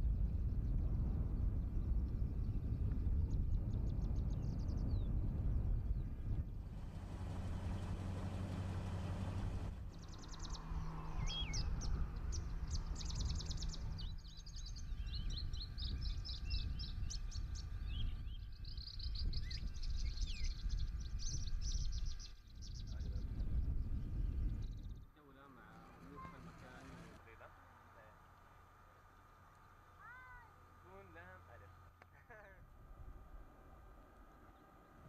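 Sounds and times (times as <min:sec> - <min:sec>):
low rumble of wind: 0:00.0 - 0:35.0
small birds chirping and trilling: 0:09.9 - 0:27.4.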